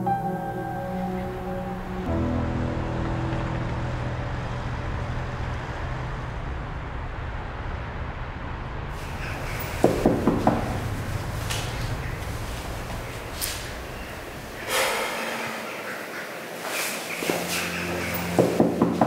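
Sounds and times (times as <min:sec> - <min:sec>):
steady low rumble: 0:00.0 - 0:16.3.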